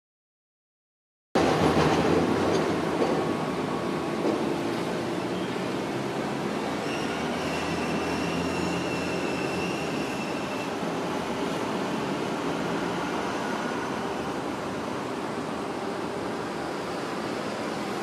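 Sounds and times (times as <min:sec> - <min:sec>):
streetcar running past: 0:01.4 - 0:18.0
streetcar wheels squealing: 0:04.4 - 0:06.0, 0:06.6 - 0:11.6.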